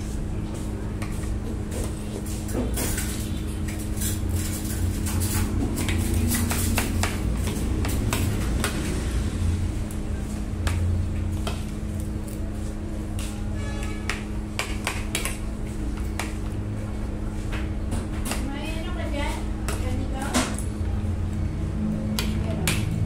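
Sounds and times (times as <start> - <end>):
steady low hum: 0.0 - 23.0.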